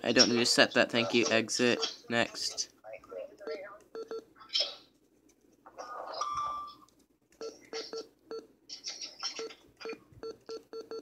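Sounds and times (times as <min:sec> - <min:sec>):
key-press beeps: 0:09.4 - 0:11.0.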